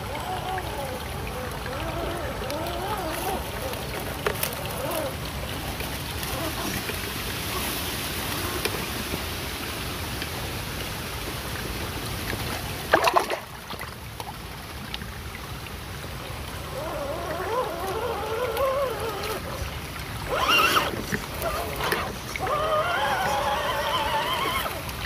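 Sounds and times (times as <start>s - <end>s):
water splashing and trickling: 0.0s - 25.0s
electric motor whine: 20.2s - 24.8s.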